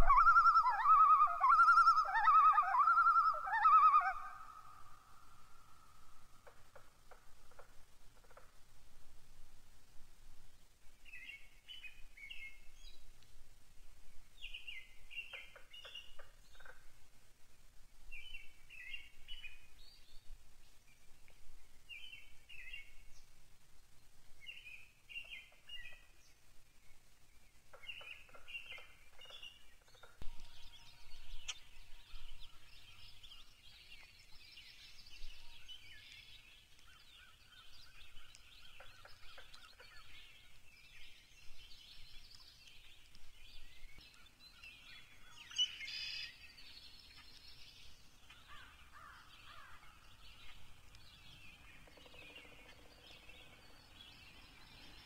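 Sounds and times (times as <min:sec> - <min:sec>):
songbird singing chippy phrase: 0:00.0 - 0:05.2, 0:18.1 - 0:20.3, 0:20.9 - 0:55.0
bird chorus: 0:00.0 - 0:08.5, 0:14.3 - 0:16.9, 0:18.1 - 0:55.0.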